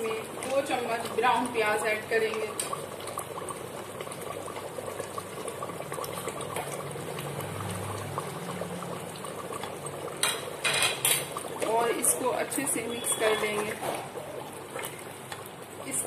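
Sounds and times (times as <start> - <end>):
thick gravy bubbling: 0.0 - 16.0.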